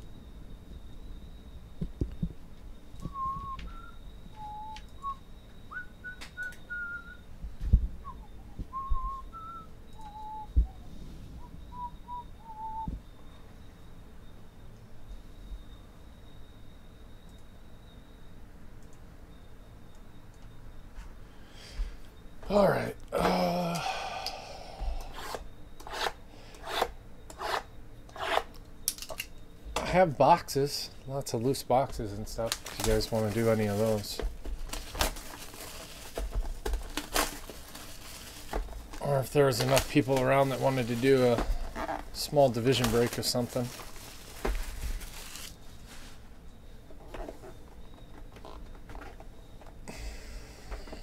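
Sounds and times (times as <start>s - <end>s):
person whistling a tune: 3.0s - 7.2s, 8.0s - 13.0s.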